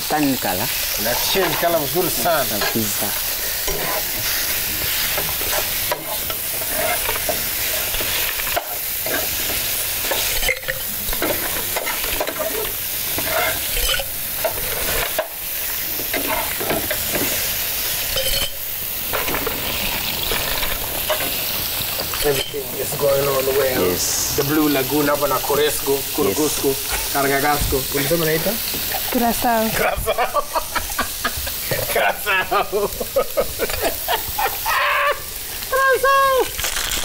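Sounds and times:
sauce sizzling in a pan: 0.0s - 37.0s
stirring scrapes and knocks: 1.0s - 3.0s, 3.6s - 15.3s, 16.0s - 17.4s.

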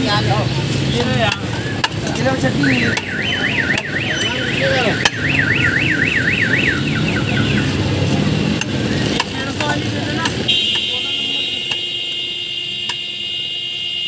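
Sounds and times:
street din: 0.0s - 14.0s
car alarm warbling: 2.3s - 8.0s, 10.3s - 14.0s.

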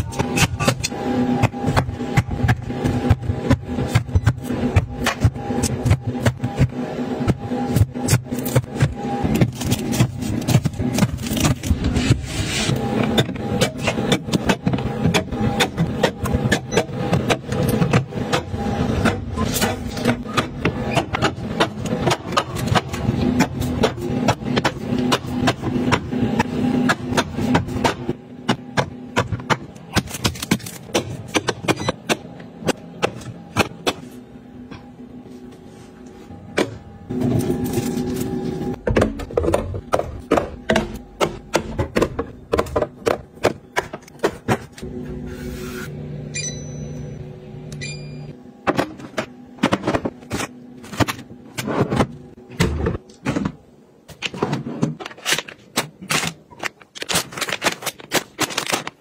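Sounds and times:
plastic food packets crinkling: 56.5s - 59.0s.

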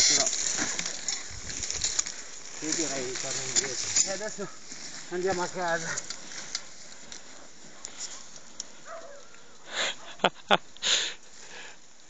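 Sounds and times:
light scuffing: 0.6s - 9.2s
short hissing breaths or scrapes: 10.8s - 11.8s.

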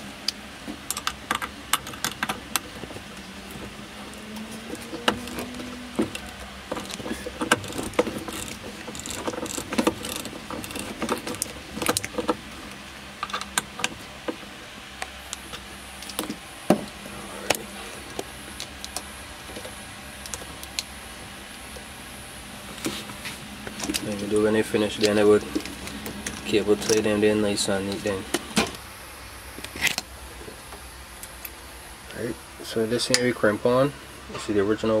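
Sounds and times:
hands handling wires clicking: 0.2s - 14.4s, 15.0s - 20.9s, 22.6s - 28.8s.

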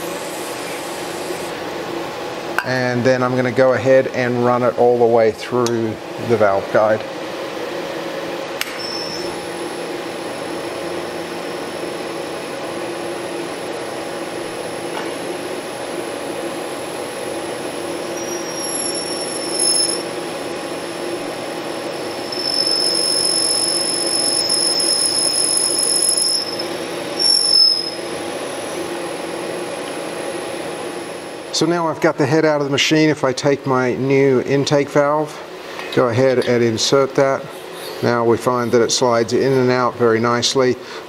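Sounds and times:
milling machine spindle hum: 0.0s - 2.5s, 7.0s - 31.6s
high-pitched reamer squeal: 18.1s - 20.3s, 21.8s - 28.2s.

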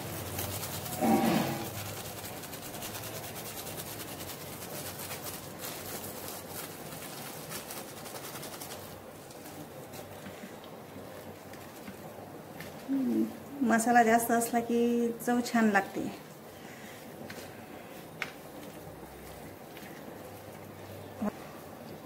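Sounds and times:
foil packet crinkling: 4.0s - 12.3s.

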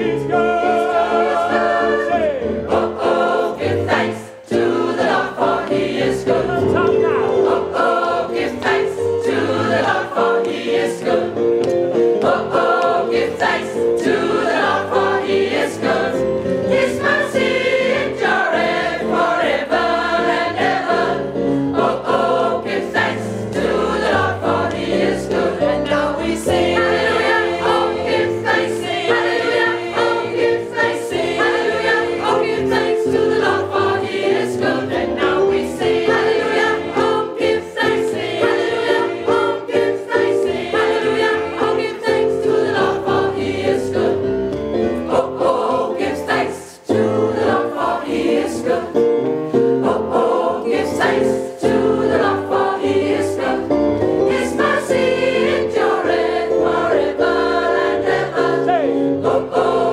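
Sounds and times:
choir singing gospel song: 0.0s - 59.9s
hand claps: 11.6s - 13.0s.

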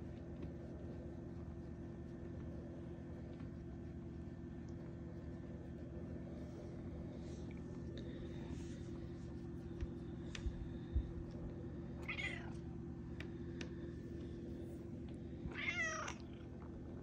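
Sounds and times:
steady low hum: 0.0s - 17.0s
cat meowing: 12.0s - 12.6s, 15.5s - 16.3s.

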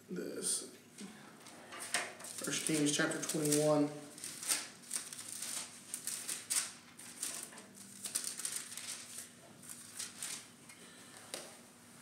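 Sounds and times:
paper pages rustling: 1.8s - 10.5s.

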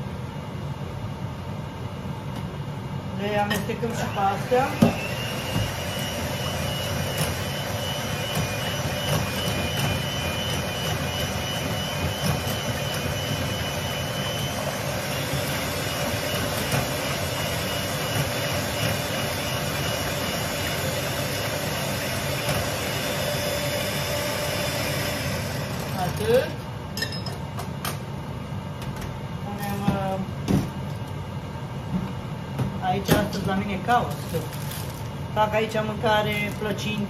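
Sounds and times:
electric hand mixer whining: 3.9s - 26.5s.

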